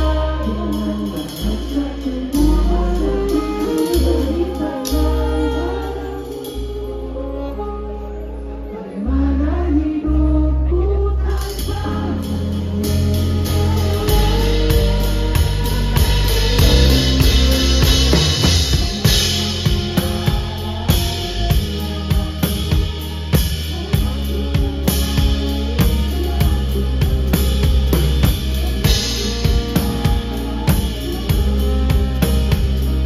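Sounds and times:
drum kit playing a beat: 0:00.0 - 0:07.7, 0:11.4 - 0:33.0
live band with double bass: 0:00.0 - 0:33.0.

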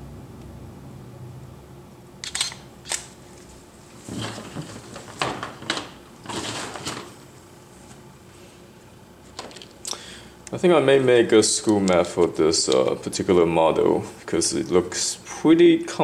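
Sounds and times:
camera shutter clicks: 0:02.2 - 0:03.1.

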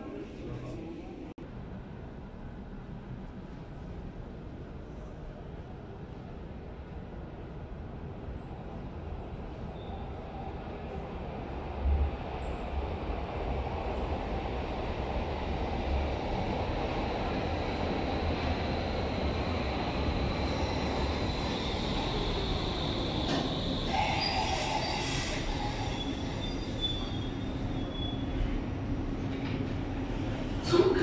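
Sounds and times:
train braking to a stop: 0:20.2 - 0:28.6
wheel and brake squeal: 0:23.3 - 0:28.4.

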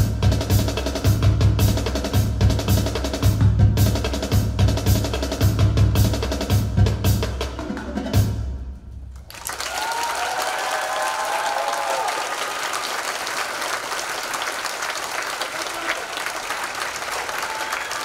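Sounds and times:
drumming: 0:00.0 - 0:12.4
audience applauding: 0:09.1 - 0:18.0.

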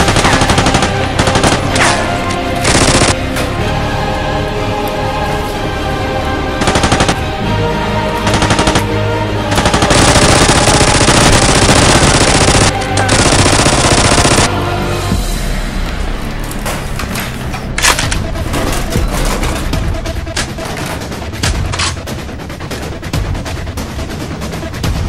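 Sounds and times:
machine-gun fire bursts: 0:00.0 - 0:01.9, 0:02.6 - 0:03.2, 0:06.6 - 0:07.2, 0:08.3 - 0:08.9, 0:09.5 - 0:14.5
background music: 0:00.0 - 0:25.0.

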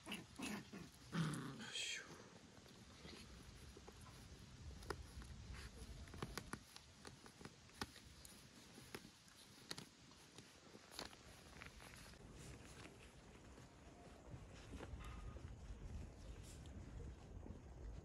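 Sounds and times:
faint clicks and taps: 0:03.6 - 0:12.2.

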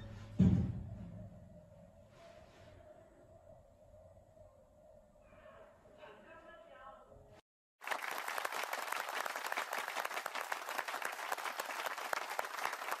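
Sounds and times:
crowd applause: 0:07.8 - 0:13.0.

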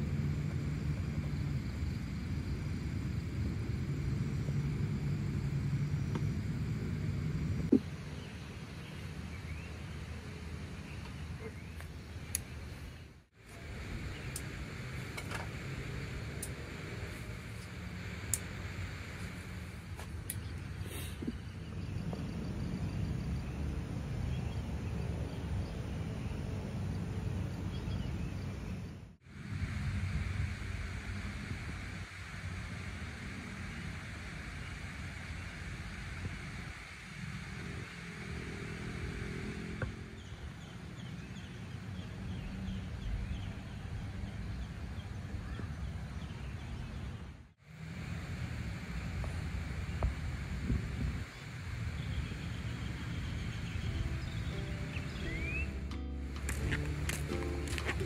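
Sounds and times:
faint insect chirping: 0:00.0 - 0:43.5, 0:47.7 - 0:58.0
low outdoor rumble: 0:00.0 - 0:58.0
bird chirping: 0:51.9 - 0:58.0.

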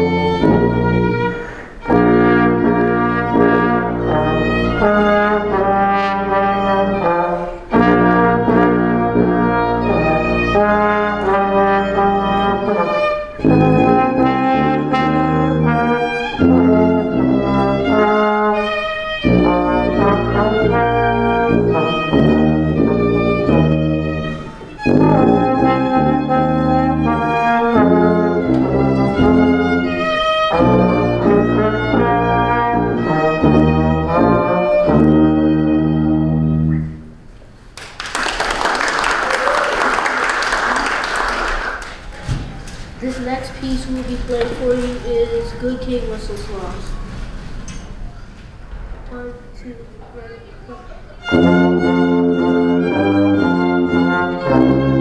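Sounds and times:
violin: 0:00.0 - 0:05.8, 0:09.4 - 0:36.4, 0:51.1 - 0:55.0
trombone: 0:00.0 - 0:37.0, 0:51.2 - 0:55.0.

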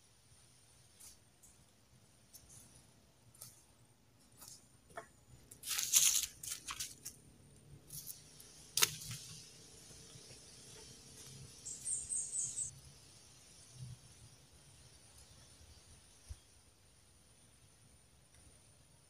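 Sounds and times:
plant fibre tearing: 0:05.5 - 0:07.2, 0:07.8 - 0:09.4.

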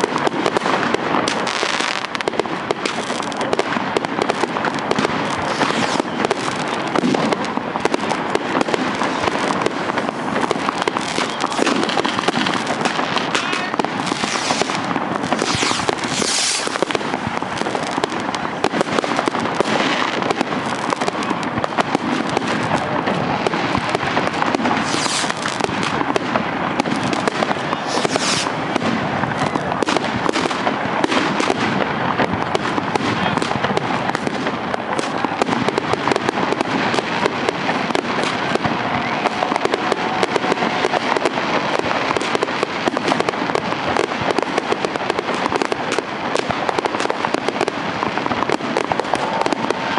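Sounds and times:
fireworks crackling and popping: 0:00.0 - 0:49.9
short high hisses: 0:15.4 - 0:16.7, 0:27.9 - 0:28.5.

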